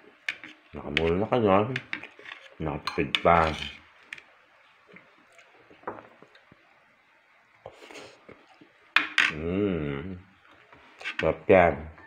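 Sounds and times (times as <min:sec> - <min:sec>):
soft eating sounds: 0:00.1 - 0:06.8, 0:07.6 - 0:11.3
faint mouth noises: 0:07.6 - 0:11.2
drawn-out voice sound: 0:09.3 - 0:10.3.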